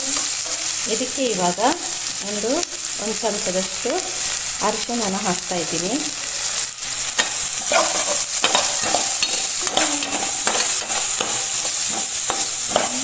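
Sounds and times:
onions sizzling in a pan: 0:00.0 - 0:13.0
spatula scraping a pan: 0:07.2 - 0:13.0.

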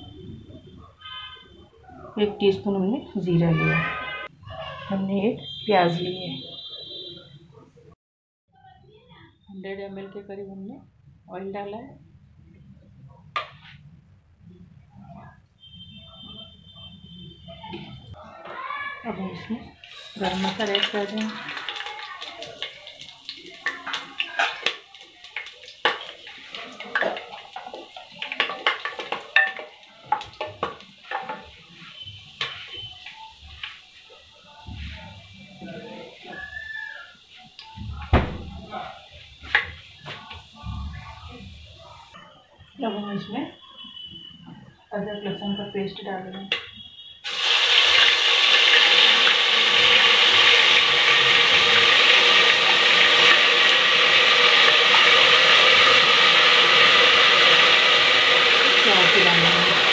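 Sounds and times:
spices sizzling in oil: 0:19.1 - 0:42.2, 0:47.2 - 0:59.9.

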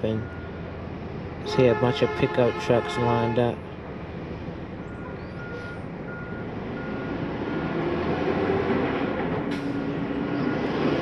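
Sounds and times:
vehicle backup alarm beeping: 0:00.0 - 0:00.7, 0:04.8 - 0:07.8
engine rumble: 0:00.0 - 0:11.0.

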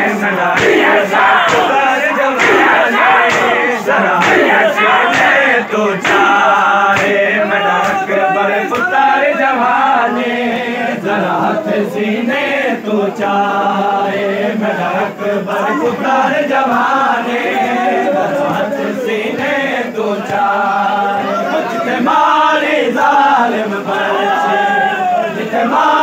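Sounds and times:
men chanting in unison: 0:00.0 - 0:26.0
hand slaps on bare chests: 0:00.5 - 0:08.1, 0:08.7 - 0:09.0.

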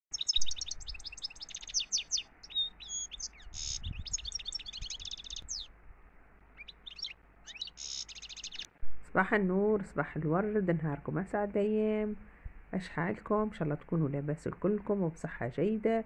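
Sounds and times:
songbird chirping and trilling: 0:00.1 - 0:05.8, 0:06.5 - 0:08.7.

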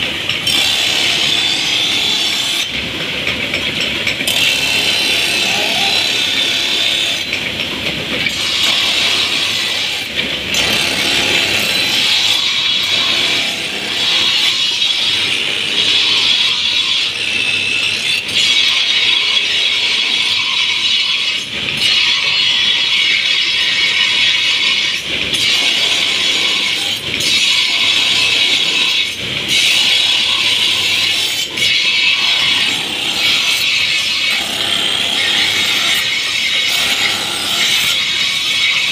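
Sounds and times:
blade grinding on abrasive wheel: 0:08.3 - 0:38.9.

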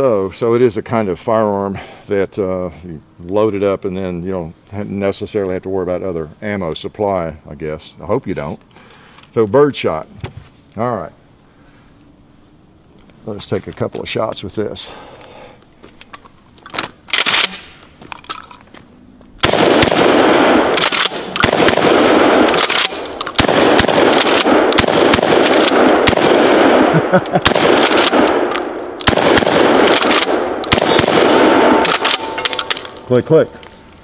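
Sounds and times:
shotgun shots with echo: 0:19.4 - 0:33.0.

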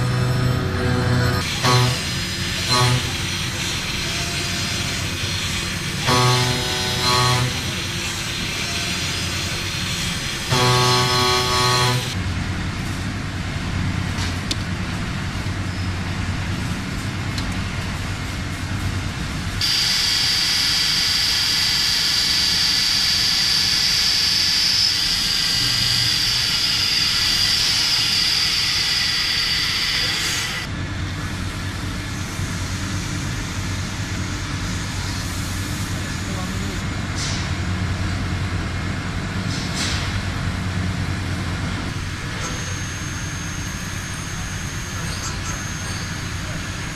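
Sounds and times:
high cutting whine: 0:00.0 - 0:12.2
machine cutting metal: 0:00.0 - 0:12.2, 0:19.6 - 0:30.7.

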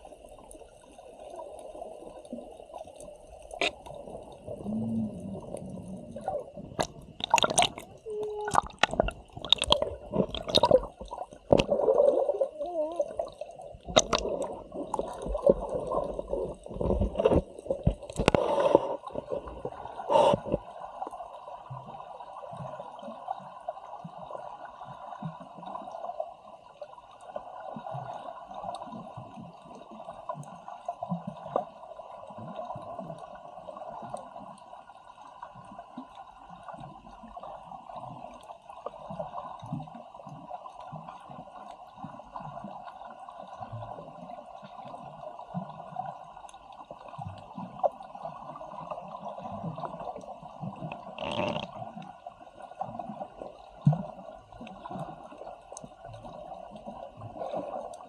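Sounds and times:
muffled underwater wash: 0:00.0 - 0:58.0
underwater bubbling and gurgling: 0:00.0 - 0:58.0
sharp water splashes: 0:06.8 - 0:11.7, 0:13.9 - 0:14.5.

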